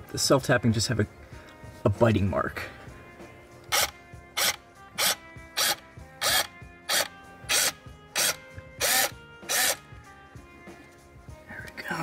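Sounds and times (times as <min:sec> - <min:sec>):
cordless drill short bursts: 0:03.7 - 0:09.8.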